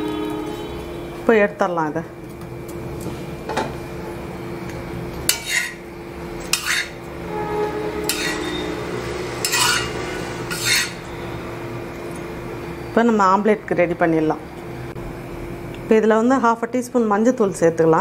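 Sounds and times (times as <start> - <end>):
steady background hum: 0.0 - 18.0
metal spatula scraping griddle: 5.3 - 5.8, 6.4 - 11.1.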